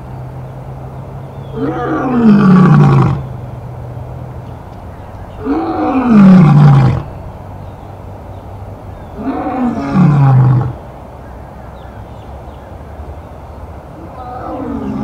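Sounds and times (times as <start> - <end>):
lioness roaring: 1.6 - 3.2, 5.4 - 7.1, 9.2 - 10.8, 14.0 - 15.0.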